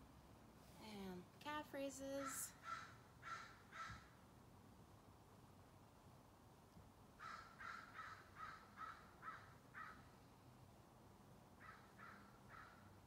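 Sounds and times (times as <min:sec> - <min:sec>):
crow cawing: 0:02.2 - 0:04.1, 0:07.2 - 0:10.0, 0:11.6 - 0:12.9.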